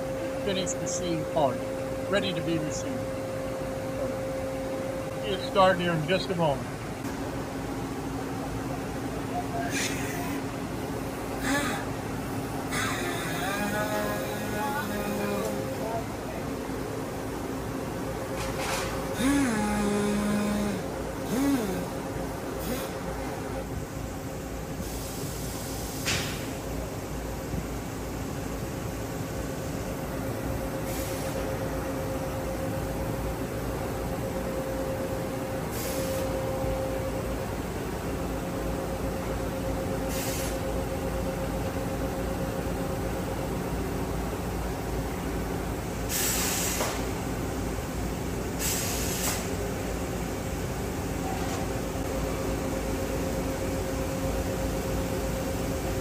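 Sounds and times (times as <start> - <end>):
industrial machinery noise: 0.0 - 56.0
steady hum: 0.0 - 56.0
compressed air hisses: 46.1 - 47.0, 48.6 - 49.5.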